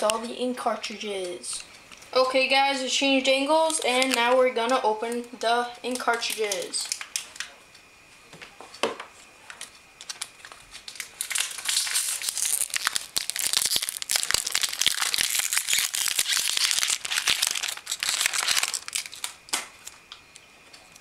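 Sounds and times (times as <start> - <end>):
packaging crinkling: 5.9 - 7.5, 9.5 - 21.0.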